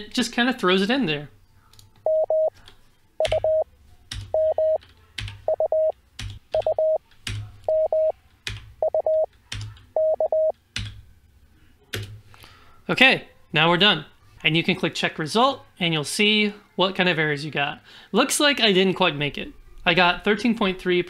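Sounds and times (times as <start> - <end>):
morse code tones: 2.1 - 2.5, 3.2 - 3.6, 4.4 - 4.8, 5.5 - 5.9, 6.6 - 7.0, 7.7 - 8.1, 8.8 - 9.3, 10.0 - 10.5.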